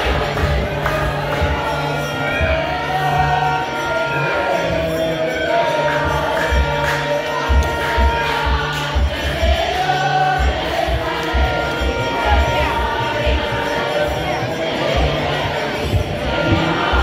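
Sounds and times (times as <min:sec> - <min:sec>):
crowd singing and chanting: 0:00.0 - 0:17.0.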